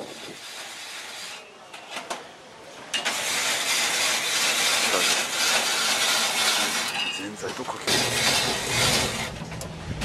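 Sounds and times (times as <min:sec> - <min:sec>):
ice machine grinding hiss: 0:00.0 - 0:01.4, 0:03.0 - 0:07.0, 0:07.9 - 0:09.3.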